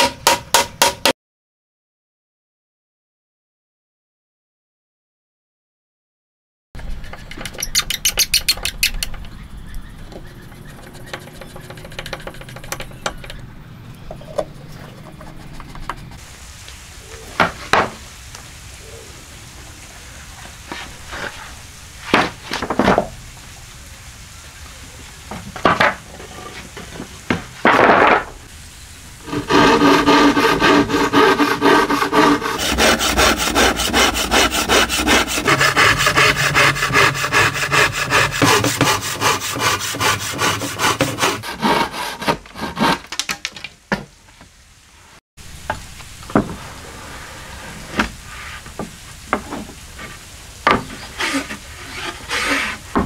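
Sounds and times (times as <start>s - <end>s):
hand tool scraping wood: 10.5s - 13.4s, 29.3s - 43.4s, 47.6s - 53.0s
wood pieces dropped on concrete: 27.0s - 28.4s, 43.0s - 44.0s
hand saw strokes: 29.3s - 43.2s, 51.0s - 53.0s.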